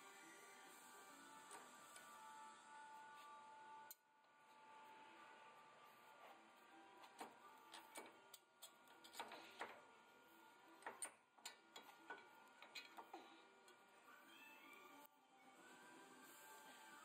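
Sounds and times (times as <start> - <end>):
faint metallic clicks and knocks: 10.8 - 13.8.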